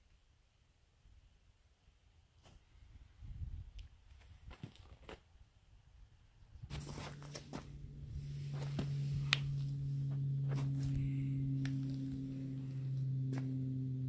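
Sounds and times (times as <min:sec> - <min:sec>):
low two-tone hum: 0:05.6 - 0:14.0.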